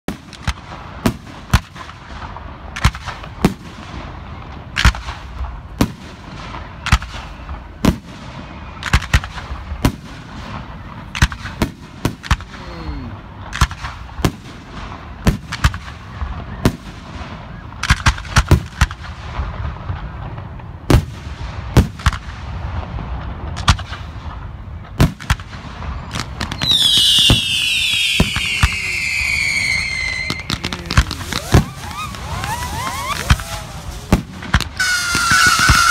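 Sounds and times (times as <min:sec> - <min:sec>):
whistling fireworks: 0:00.1 - 0:35.9
firework shells bursting: 0:26.1 - 0:35.9.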